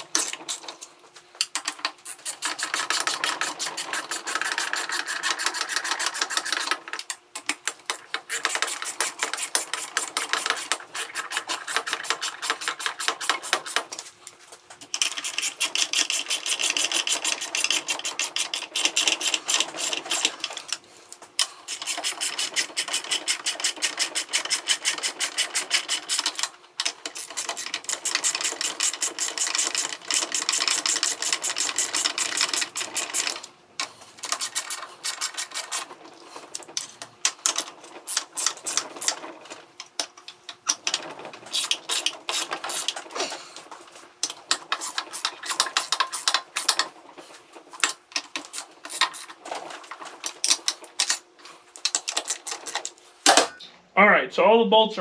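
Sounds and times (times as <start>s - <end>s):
ratchet clicking rapidly: 1.6s - 6.9s, 8.2s - 13.8s, 14.9s - 20.5s, 21.7s - 33.5s.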